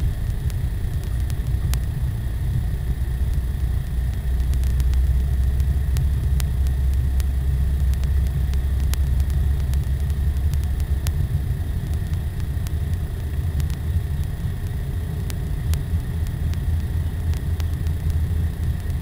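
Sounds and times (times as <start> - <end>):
car engine and tyres rumbling: 0.0 - 19.0
faint clicks: 0.0 - 19.0.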